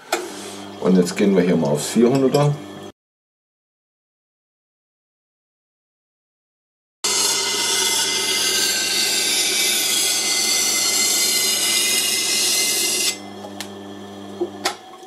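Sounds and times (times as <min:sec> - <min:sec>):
blade grinding on wheel: 0:07.0 - 0:13.7
motor low hum: 0:13.2 - 0:15.0.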